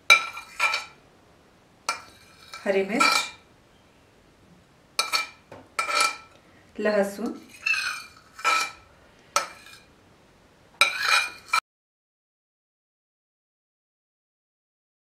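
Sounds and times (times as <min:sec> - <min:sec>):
spoon scraping a ceramic plate: 0:00.1 - 0:01.0, 0:01.9 - 0:03.4, 0:05.0 - 0:06.4, 0:07.2 - 0:09.9, 0:10.8 - 0:11.6.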